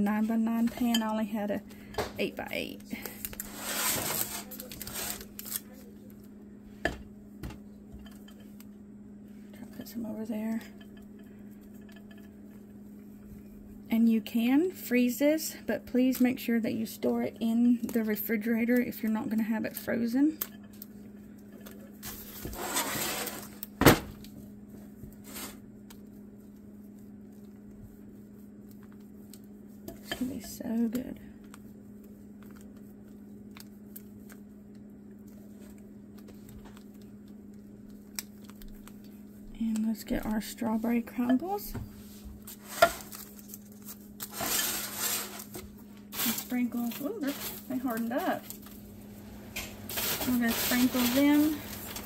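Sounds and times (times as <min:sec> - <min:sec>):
steady low hum: 0:00.0 - 0:52.0
spatula spreading frosting rustle: 0:03.0 - 0:06.0, 0:20.8 - 0:23.6, 0:24.4 - 0:48.8, 0:49.8 - 0:52.0
spatula scraping frosting: 0:03.4 - 0:05.3, 0:22.2 - 0:23.5, 0:44.3 - 0:45.6.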